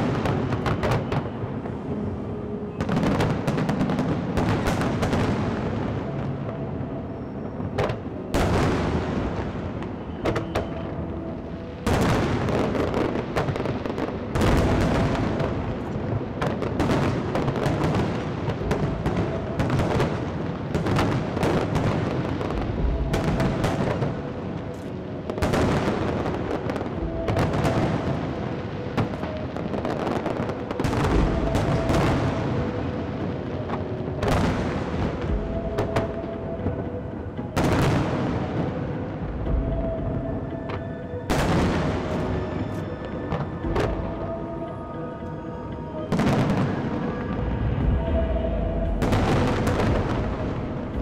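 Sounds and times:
fireworks crackling and popping: 0:00.0 - 0:02.0, 0:11.8 - 0:36.2
fireworks booming: 0:02.7 - 0:06.6, 0:11.8 - 0:24.7, 0:25.3 - 0:36.8, 0:46.1 - 0:51.0.

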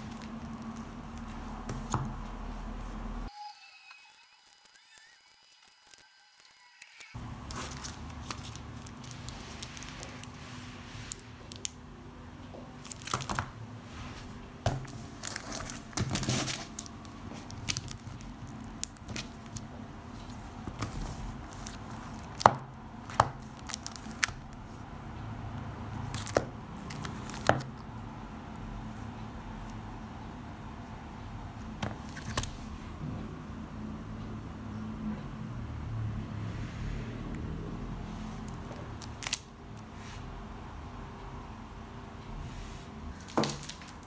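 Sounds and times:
steady low hum: 0:00.0 - 0:03.3, 0:07.2 - 0:44.0
sharp plastic crackles: 0:04.4 - 0:10.4, 0:12.7 - 0:13.6, 0:14.6 - 0:24.6, 0:26.0 - 0:27.9, 0:38.5 - 0:39.9, 0:43.2 - 0:44.0
plastic bags crinkling: 0:07.2 - 0:11.8, 0:12.8 - 0:13.6, 0:14.7 - 0:22.6, 0:23.4 - 0:24.6, 0:43.2 - 0:44.0.

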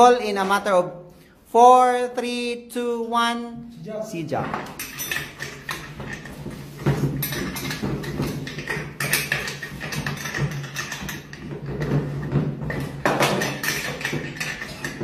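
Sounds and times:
small hard parts clattering: 0:04.4 - 0:15.0.

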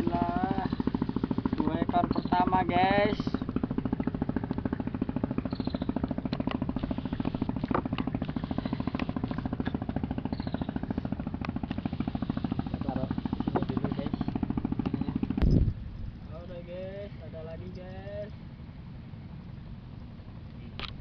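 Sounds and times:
small engine puttering: 0:00.0 - 0:16.2.

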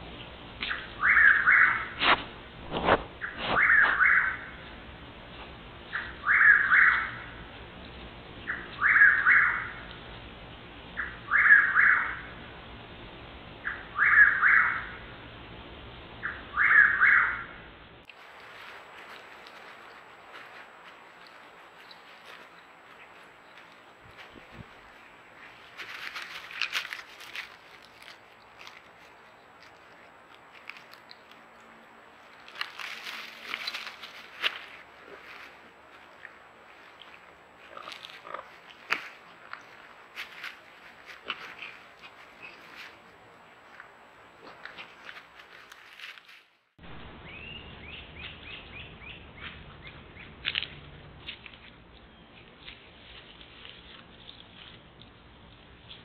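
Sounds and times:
nightjar singing: 0:00.6 - 0:02.0, 0:03.2 - 0:04.7, 0:05.8 - 0:07.4, 0:08.4 - 0:09.9, 0:11.0 - 0:12.4, 0:13.6 - 0:15.1, 0:16.2 - 0:17.6, 0:47.0 - 0:50.4
raccoons rustling in dry leaves: 0:18.1 - 0:46.7, 0:52.3 - 0:56.0.

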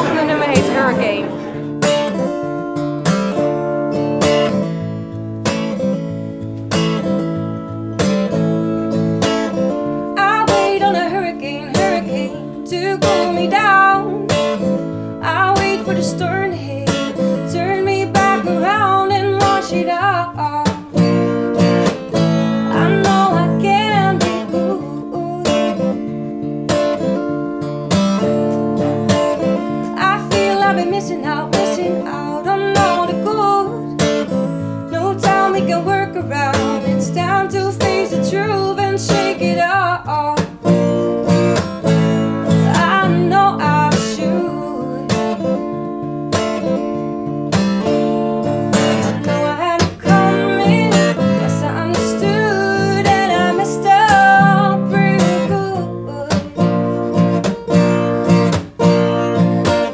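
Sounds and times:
woman singing: 0:00.0 - 0:02.6, 0:09.8 - 0:26.2, 0:28.5 - 0:41.0, 0:41.8 - 0:46.1, 0:48.4 - 0:57.5
acoustic guitar strumming: 0:00.0 - 0:59.9.

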